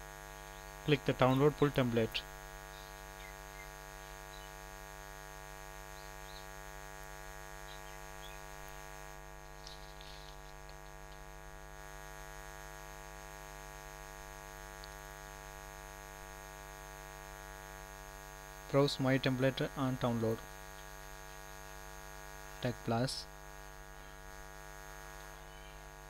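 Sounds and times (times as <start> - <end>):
electrical mains hum: 0.0 - 26.0
faint ticks: 14.8 - 15.0.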